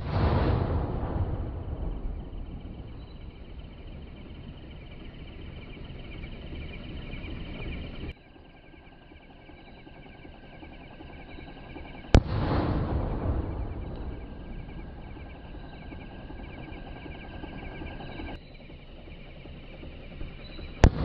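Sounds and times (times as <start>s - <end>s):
rumbling firework tail: 0.0s - 5.5s, 12.1s - 18.4s.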